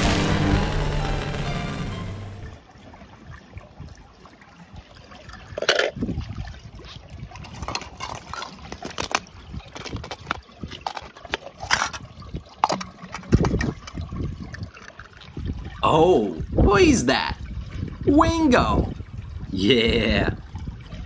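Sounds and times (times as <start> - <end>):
water sloshing and splashing: 2.5 - 15.8, 17.3 - 18.1, 20.4 - 21.0
toy cars knocking in water: 7.4 - 12.0, 12.6 - 15.0.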